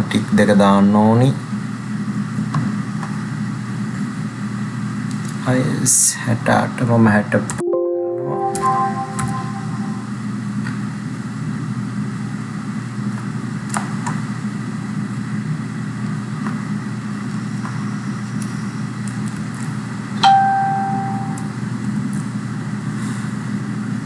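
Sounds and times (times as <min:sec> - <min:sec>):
chime ding: 0:07.6 - 0:10.2, 0:20.2 - 0:21.6.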